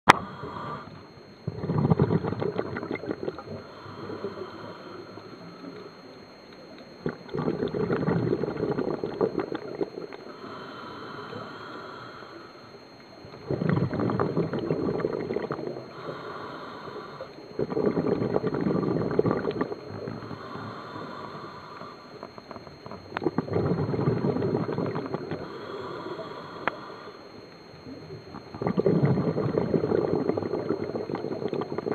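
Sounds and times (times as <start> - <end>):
hissing regulator inhale: 0.1 - 2.4, 3.3 - 6.2, 9.8 - 12.8, 13.5 - 22.4, 23.5 - 27.5
exhaled bubbles rushing: 1.5 - 3.6, 7.0 - 10.1, 13.4 - 15.8, 17.6 - 20.2, 23.2 - 25.4, 28.4 - 31.9.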